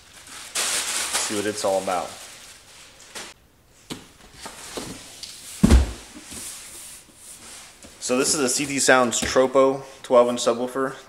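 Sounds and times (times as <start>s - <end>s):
box thudding on table: 5.6s - 6.1s.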